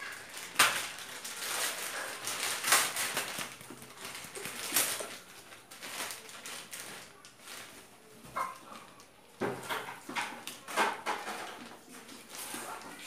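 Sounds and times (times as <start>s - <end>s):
plastic bag tearing and crinkling: 0.0s - 8.0s.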